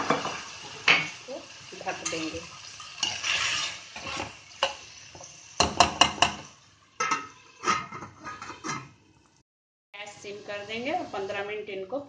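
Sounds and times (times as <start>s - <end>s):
spatula scraping metal pan: 3.0s - 4.8s, 7.0s - 8.9s
metal lid clattering onto pan: 7.0s - 8.9s.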